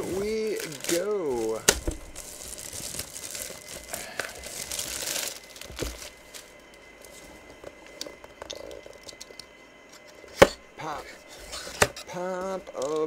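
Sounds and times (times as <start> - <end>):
plastic wrap crinkling and tearing: 0.0 - 6.5
cardboard box rustling: 0.0 - 7.3.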